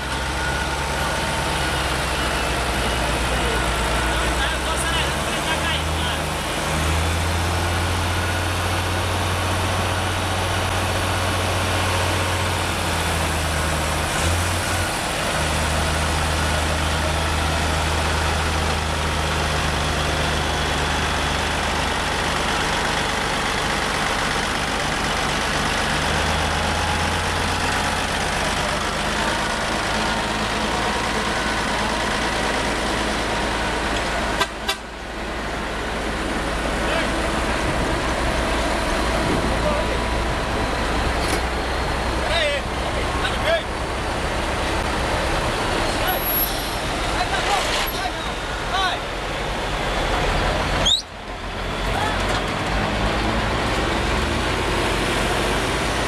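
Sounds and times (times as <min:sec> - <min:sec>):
diesel engines idling: 0:00.0 - 0:56.0.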